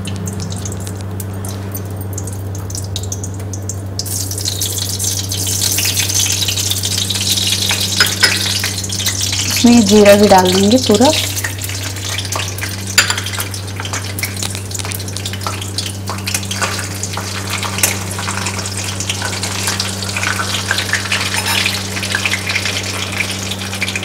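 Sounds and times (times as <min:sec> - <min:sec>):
seeds sizzling in hot oil: 0:00.0 - 0:24.0
spatula stirring: 0:11.4 - 0:22.0.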